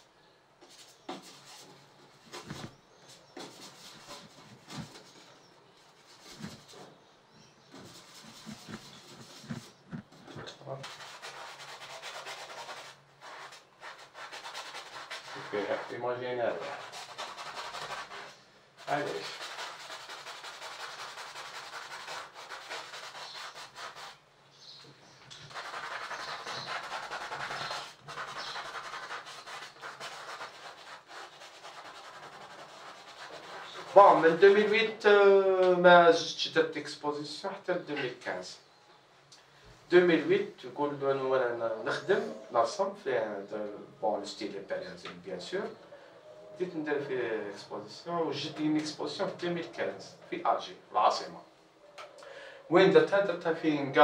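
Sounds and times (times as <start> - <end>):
paintbrush scrubbing on palette: 0.7 - 7.0, 7.7 - 15.9, 16.6 - 24.2, 25.4 - 34.7.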